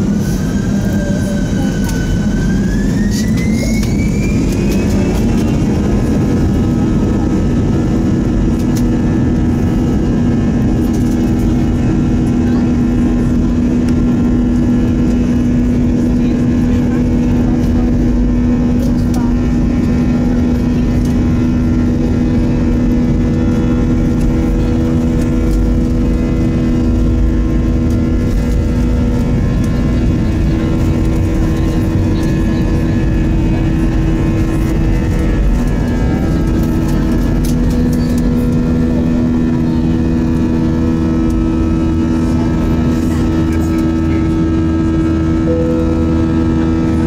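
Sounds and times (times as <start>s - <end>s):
jet engines at takeoff thrust: 0.0s - 47.0s.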